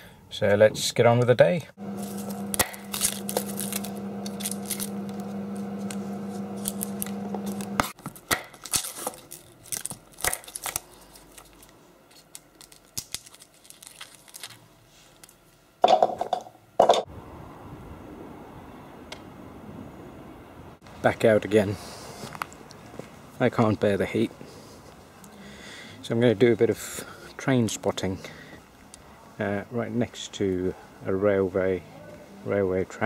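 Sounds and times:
steady hum: 0:01.6 - 0:08.5
papery crackle of garlic skins: 0:01.9 - 0:15.4.

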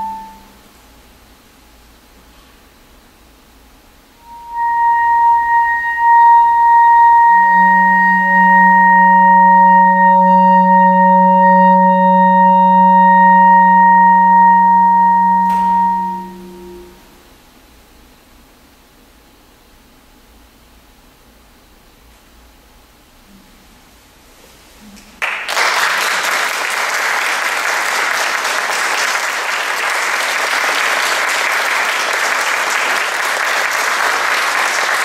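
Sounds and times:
clarinet sustained tones: 0:00.0 - 0:00.8, 0:04.2 - 0:17.3
low electronic drone: 0:04.2 - 0:17.3.

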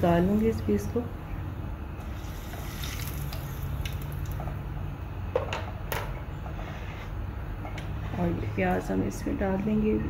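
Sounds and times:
oil sizzling in a frying pan: 0:02.0 - 0:04.6
oil crackles and pops: 0:02.2 - 0:04.6.

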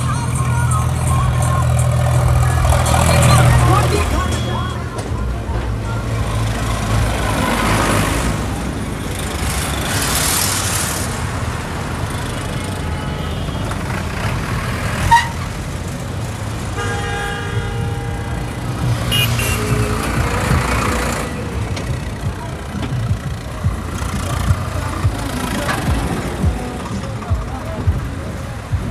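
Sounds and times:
vehicles passing on highway: 0:00.0 - 0:28.9
vehicle horn: 0:02.4 - 0:04.9, 0:12.2 - 0:14.0, 0:15.0 - 0:15.6, 0:16.7 - 0:21.6.

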